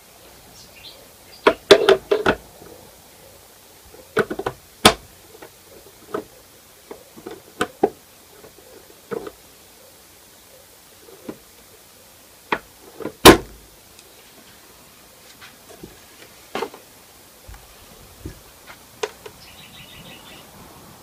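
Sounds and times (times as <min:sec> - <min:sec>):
hard parts knocking and clicking: 0:01.4 - 0:02.4.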